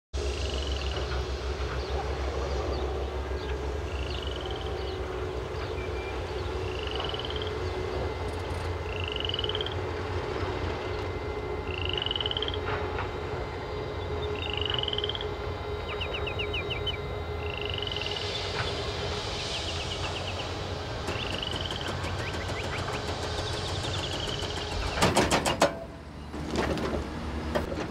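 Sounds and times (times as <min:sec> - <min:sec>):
distant motorway traffic rumble: 0:17.9 - 0:27.9
rapid rattle of ticks: 0:20.0 - 0:25.0.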